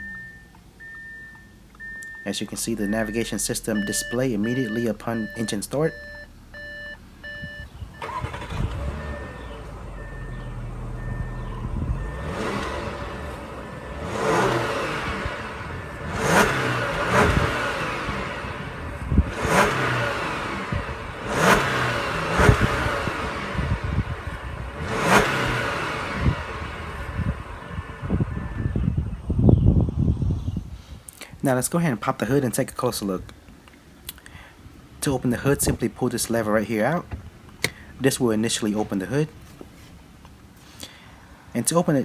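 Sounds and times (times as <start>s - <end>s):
repeating beep: 0.0s - 8.2s, 9.0s - 12.5s
car engine idling and revving: 0.0s - 30.6s.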